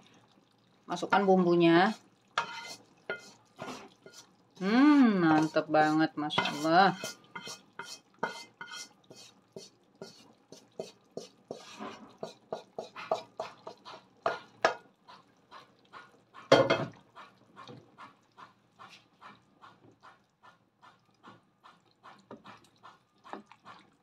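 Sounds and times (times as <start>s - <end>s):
spatula scraping a pan: 1.1s - 18.1s.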